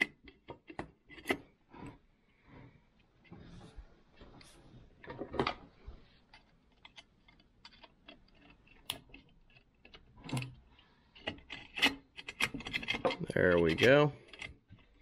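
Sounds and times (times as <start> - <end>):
metal pick clicking and scraping: 0.0 - 2.0, 6.3 - 15.0.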